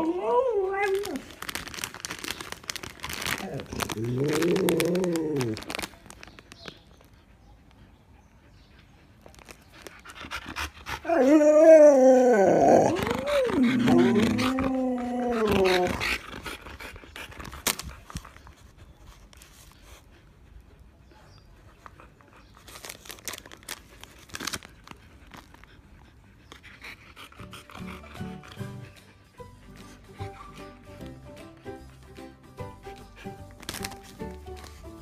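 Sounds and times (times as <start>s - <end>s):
dog vocalizing: 12.8s - 16.5s.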